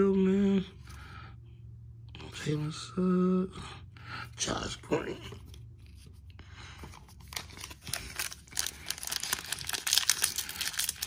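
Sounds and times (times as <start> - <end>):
foil pack crinkling and tearing: 7.2 - 11.0.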